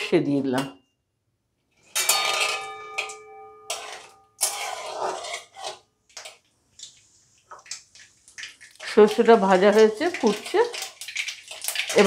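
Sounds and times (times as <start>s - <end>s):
spatula scraping and stirring: 1.8s - 12.0s
metal spatula striking a pan: 1.9s - 5.8s
seeds sizzling in hot oil: 4.4s - 12.0s.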